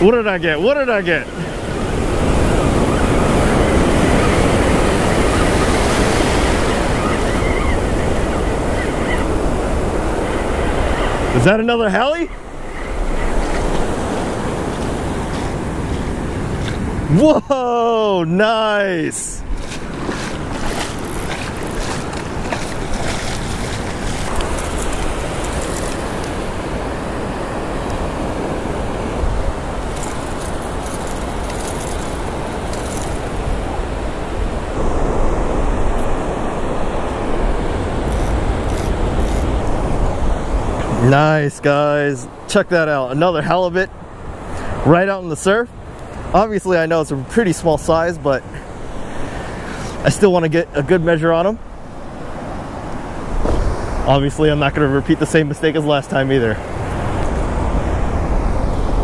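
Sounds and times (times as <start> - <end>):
ocean surf breaking: 0.0 - 59.0
wind on microphone: 1.3 - 11.4, 19.3 - 41.1, 51.7 - 54.8, 56.6 - 59.0.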